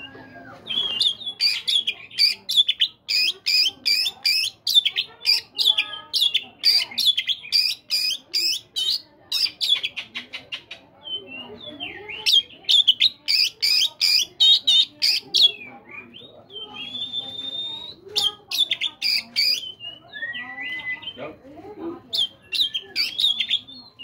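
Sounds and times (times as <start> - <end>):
bird singing sharp notes: 22.1 - 24.0.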